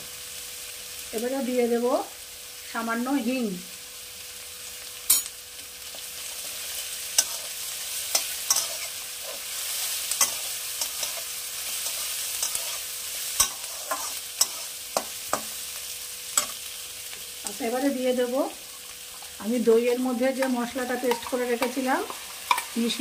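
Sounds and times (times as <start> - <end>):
vegetables sizzling in hot oil: 0.0 - 23.0
metal spatula scraping pan: 7.2 - 15.6.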